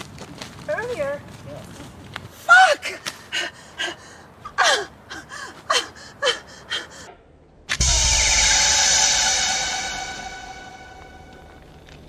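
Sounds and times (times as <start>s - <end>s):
deep boom with ringing chord: 7.8s - 11.6s.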